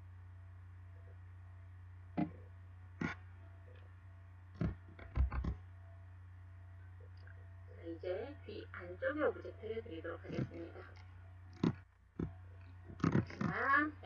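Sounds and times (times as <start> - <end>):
low electrical hum: 0.0 - 14.0
computer mouse clicks: 10.3 - 13.6.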